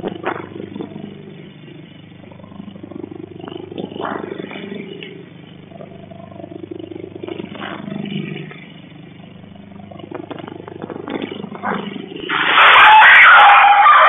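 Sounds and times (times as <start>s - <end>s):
dog yelping: 12.6s - 14.0s.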